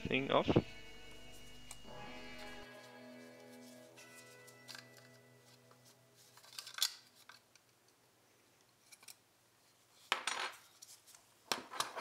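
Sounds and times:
parts scraping: 1.1s - 7.6s.

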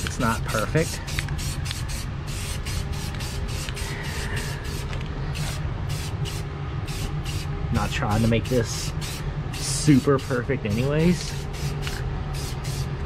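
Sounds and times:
spray can hissing: 0.0s - 12.9s
low hum: 0.0s - 13.0s.

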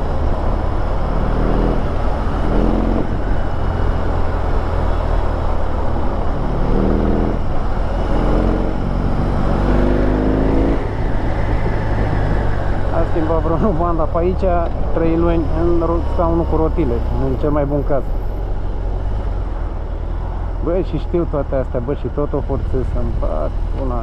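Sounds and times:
motorcycle engine revving: 0.0s - 13.9s
low traffic rumble: 0.0s - 24.0s.

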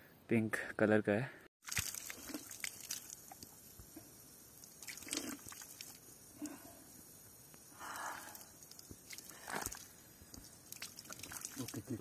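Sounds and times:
slurping water: 1.6s - 6.6s, 8.1s - 12.0s.

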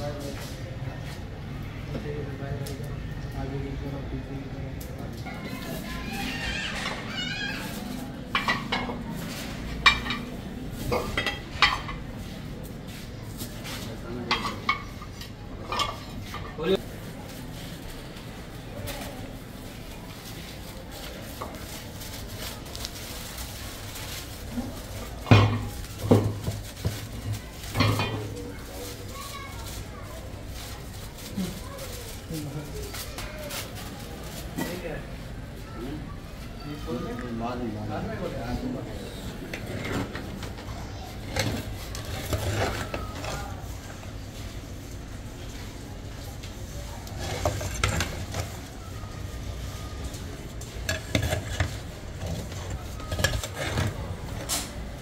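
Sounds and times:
aluminium foil crinkling: 16.8s - 35.0s.

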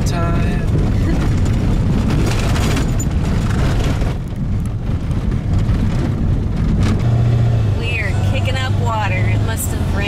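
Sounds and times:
truck cab road rumble: 0.0s - 10.0s
jolts and rattles: 0.9s - 4.3s.

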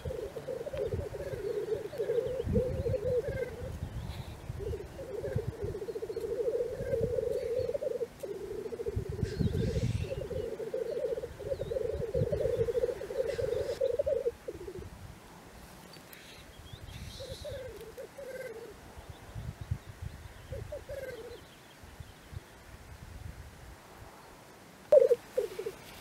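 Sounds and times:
grouse harsh hissing calls: 0.0s - 14.8s, 16.2s - 18.8s, 24.9s - 26.0s
grouse bubbling song: 24.9s - 25.8s.

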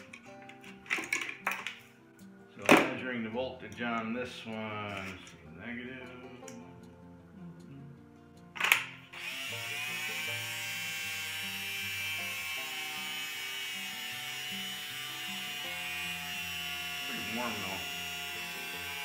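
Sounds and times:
background music: 0.0s - 19.0s
cordless drill motor running: 9.1s - 19.0s.

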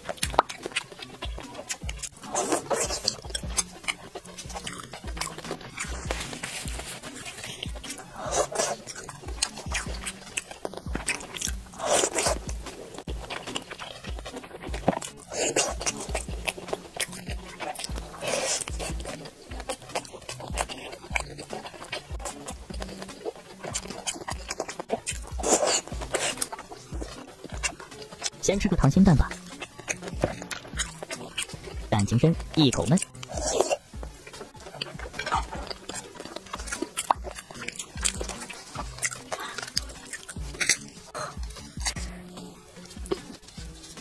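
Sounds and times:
wet mouth clicks: 0.0s - 28.4s, 29.2s - 44.0s
close chewing: 0.0s - 44.0s
crayfish shell crackling: 0.0s - 44.0s.

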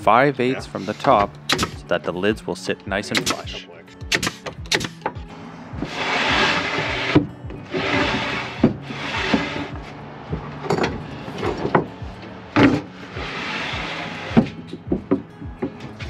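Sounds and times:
plywood lids scraping on wood: 0.7s - 1.8s, 5.8s - 10.0s, 12.6s - 16.0s
sharp wooden knocks: 4.1s - 5.2s, 14.3s - 15.8s.

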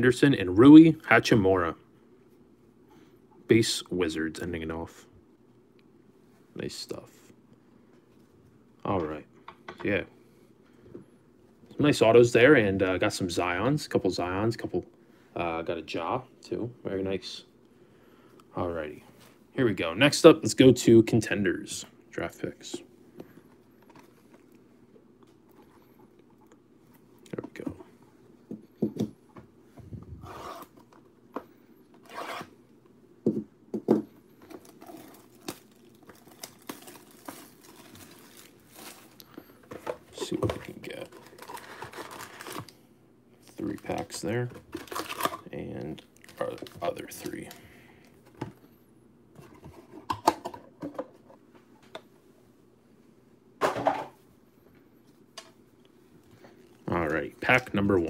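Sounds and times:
foil packs crinkling: 34.5s - 39.3s, 40.8s - 42.8s, 43.6s - 45.5s.

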